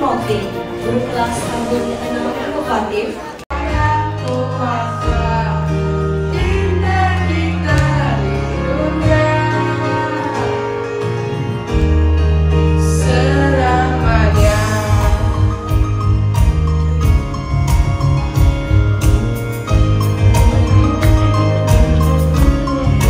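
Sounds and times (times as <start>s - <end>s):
person singing into microphone: 3.5s - 11.1s, 12.8s - 15.9s
backing music with bass: 3.5s - 23.0s.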